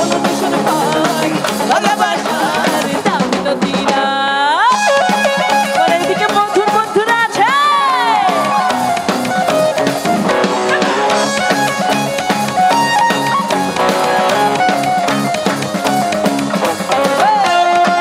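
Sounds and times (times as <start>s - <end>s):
drum kit beat: 0.0s - 18.0s
live band playing loud music: 0.0s - 18.0s.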